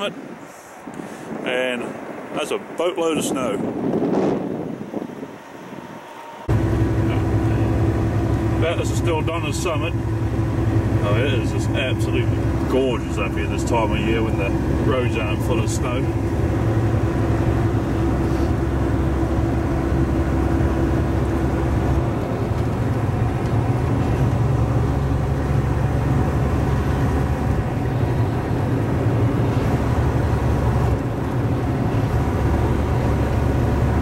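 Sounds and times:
diesel engine drone: 0:00.0 - 0:34.0
tyre and road noise: 0:00.0 - 0:34.0.

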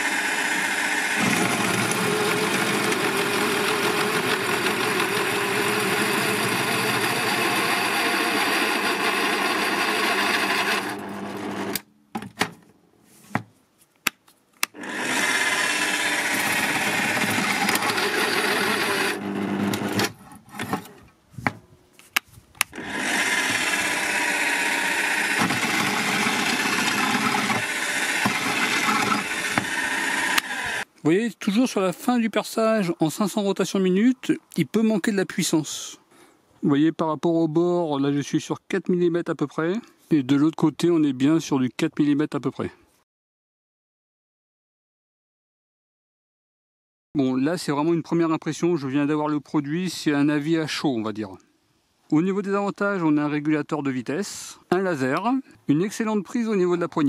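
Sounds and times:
pillar drill cutting steel: 0:00.0 - 0:11.8, 0:14.7 - 0:20.1, 0:22.7 - 0:30.9.

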